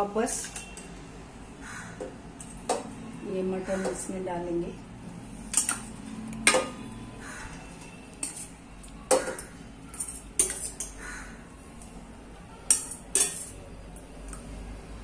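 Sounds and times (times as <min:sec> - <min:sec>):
spoon clinking on steel pan: 0:09.1 - 0:11.0, 0:12.7 - 0:13.6.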